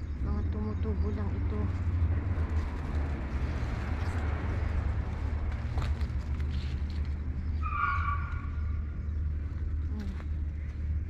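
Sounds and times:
leaves and stems rustling: 1.0 - 7.5.

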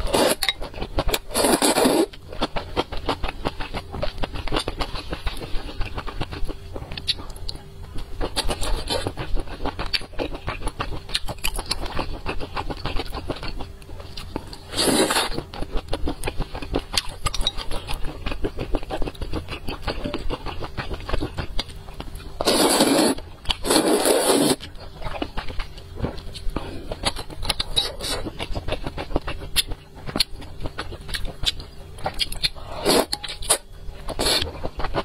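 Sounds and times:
wet chewing and mouth clicks: 0.6 - 22.5, 23.4 - 35.0
slurping noodles: 1.3 - 2.1, 14.7 - 15.4, 22.4 - 24.6, 32.7 - 33.1.

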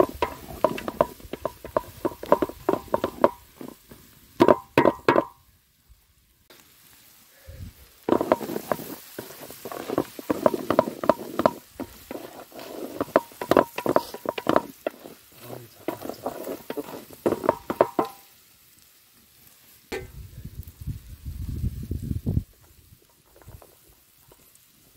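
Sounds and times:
spatula scraping metal pot: 0.0 - 5.3, 8.1 - 18.2
chicken sizzling: 0.0 - 24.9
pot ringing: 19.9 - 20.2.

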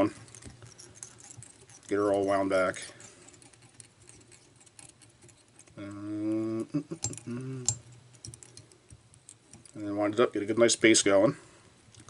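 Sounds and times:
thread ticking and rustling: 0.0 - 10.6
man making wordless sound: 5.8 - 7.8.

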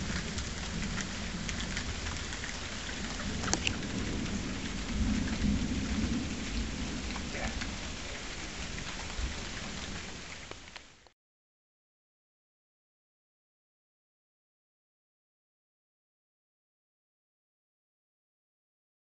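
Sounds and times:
thunder rumble: 0.0 - 10.3
raindrops ticking close by: 0.0 - 11.2
steady rain falling: 0.0 - 11.2.

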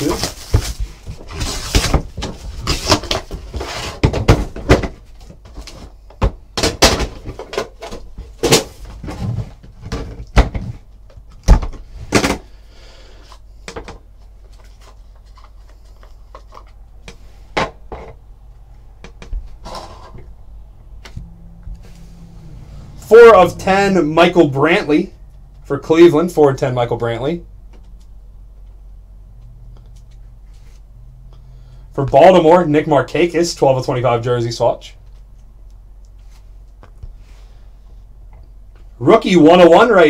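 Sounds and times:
cardboard boxes knocking and sliding: 0.0 - 10.9.

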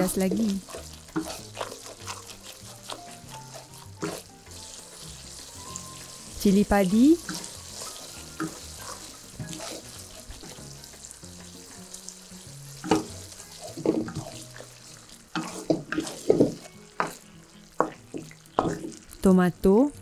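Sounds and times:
wooden spatula scraping a pan: 0.0 - 19.1
sauce sizzling in a wok: 0.0 - 20.0.

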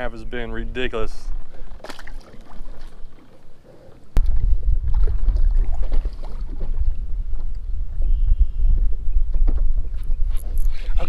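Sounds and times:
wind buffeting microphone: 4.0 - 11.0.

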